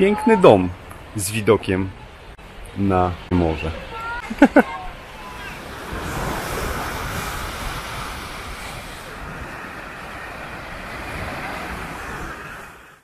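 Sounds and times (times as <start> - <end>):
wind buffeting microphone: 4.8 - 12.9.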